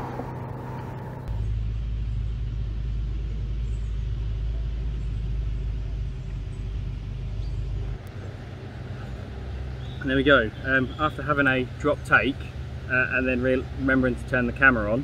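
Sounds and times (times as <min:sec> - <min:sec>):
steady low rumble: 0:00.0 - 0:10.8.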